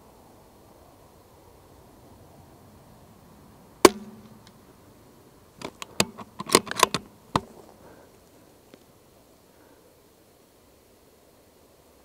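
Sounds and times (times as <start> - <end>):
suppressed rifle shot: 3.8 - 4.4
rifle bolt metallic clicks: 5.6 - 7.5.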